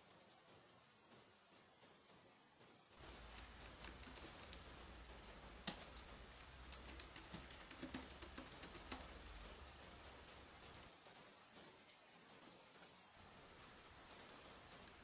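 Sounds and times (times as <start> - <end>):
computer keyboard typing: 3.1 - 10.3.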